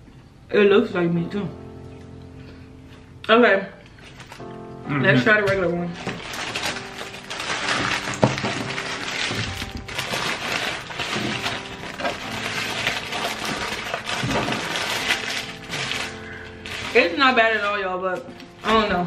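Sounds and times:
quiet background music: 0.0s - 19.0s
paper wrappers crinkling: 3.8s - 4.6s, 5.9s - 19.0s.

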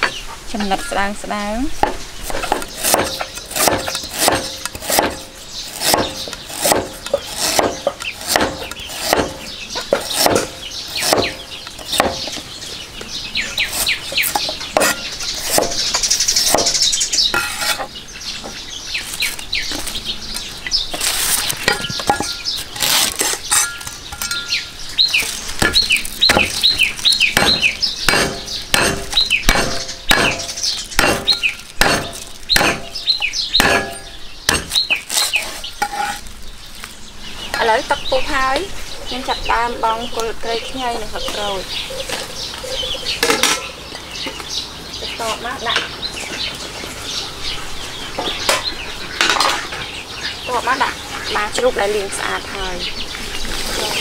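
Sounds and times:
birds chirping: 0.0s - 54.0s.

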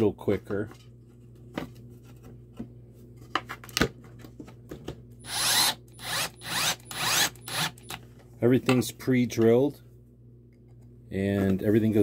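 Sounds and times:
power drill driving a screw: 5.2s - 8.0s.

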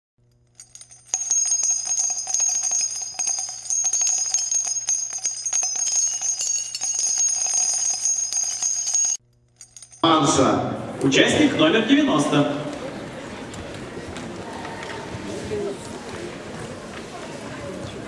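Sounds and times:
small bells jingling: 0.4s - 10.6s.

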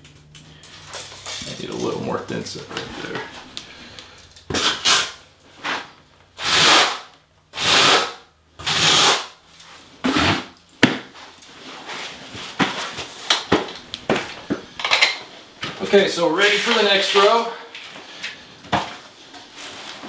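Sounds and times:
trowel scraping mortar: 16.4s - 17.4s.

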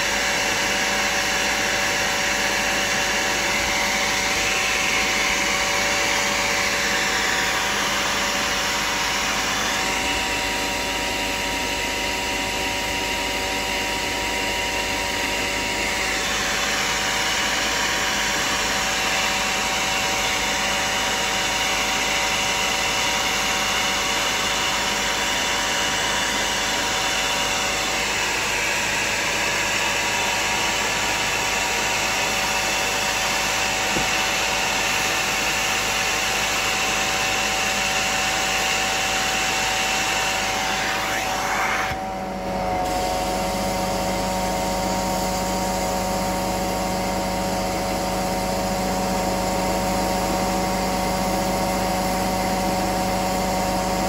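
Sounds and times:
vacuum motor rushing and whining: 0.0s - 54.0s.

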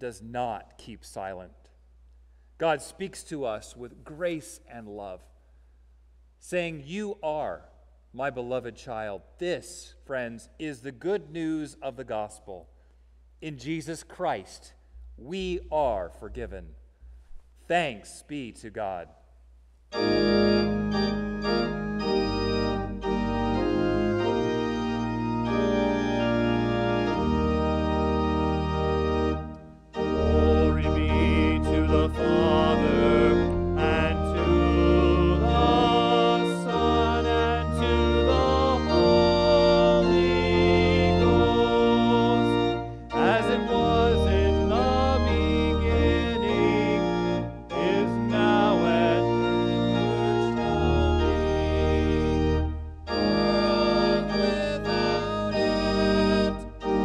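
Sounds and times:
church organ chords: 19.9s - 57.0s
man singing: 30.2s - 51.5s, 53.1s - 57.0s.

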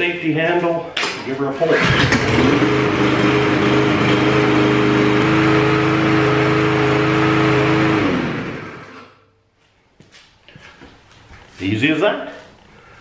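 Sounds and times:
lawn mower engine running: 1.7s - 9.1s.

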